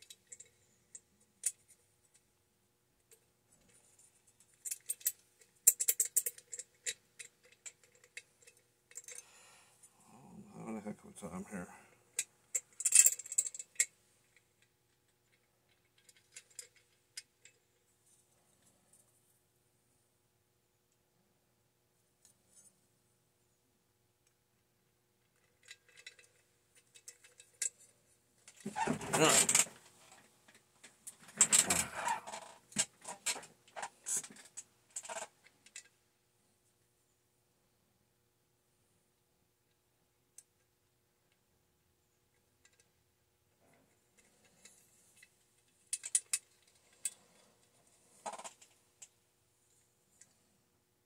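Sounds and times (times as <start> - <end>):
small metal parts clinking: 0.0 - 1.8, 4.4 - 9.3, 12.1 - 14.4, 15.2 - 17.6, 25.3 - 27.9, 28.5 - 29.7, 30.5 - 35.9, 44.2 - 47.4
metal parts clattering on workbench: 28.5 - 29.7, 31.2 - 35.2.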